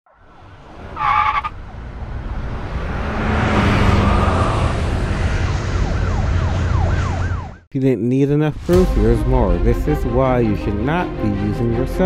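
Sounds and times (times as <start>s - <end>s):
road traffic passing: 0.1s - 7.7s.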